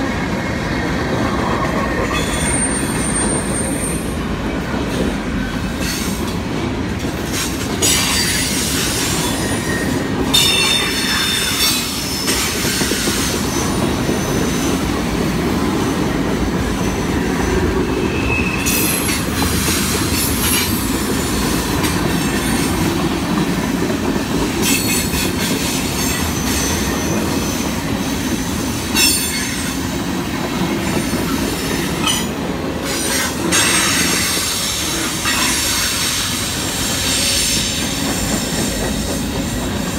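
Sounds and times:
train cars rolling rumble: 0.0 - 39.9
high-pitched wheel squeals: 8.1 - 12.4, 18.0 - 19.1.

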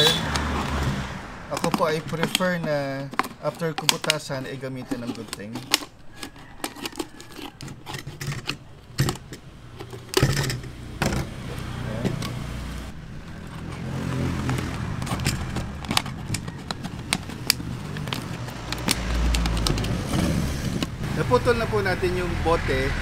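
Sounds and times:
vehicle engine rumbling: 0.0 - 23.0
knife cutting plastic bottle: 1.5 - 10.7, 13.2 - 20.9
plastic clicks and crackles: 1.5 - 11.2, 13.2 - 20.9.

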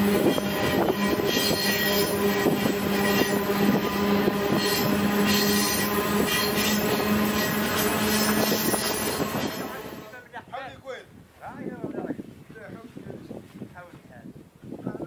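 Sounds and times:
train wagon rattling and clanking: 0.0 - 10.2.

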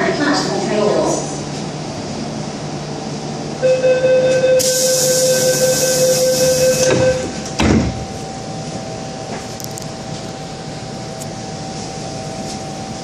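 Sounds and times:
door closing warning tone: 3.6 - 8.3
loud hiss of sliding doors: 4.6 - 6.7.

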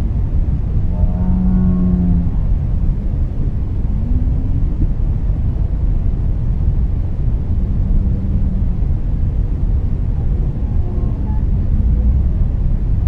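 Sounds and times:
low underwater rumble: 0.0 - 13.0
whale calls: 0.9 - 2.6.

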